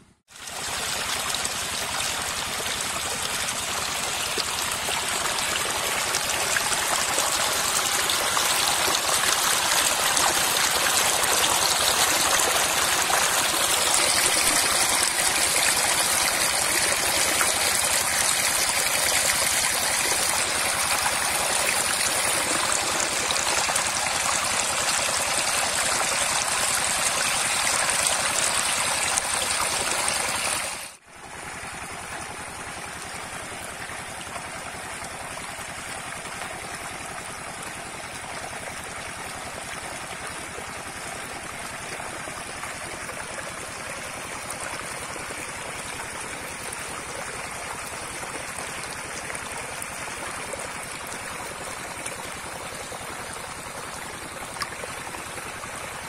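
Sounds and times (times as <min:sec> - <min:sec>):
shallow water rushing and splashing: 0:00.4 - 0:30.9.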